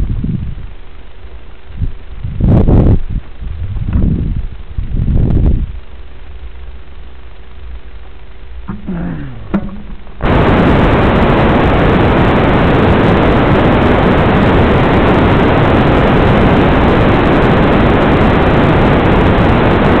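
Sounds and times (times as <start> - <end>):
radio static hiss: 5.7 - 20.0.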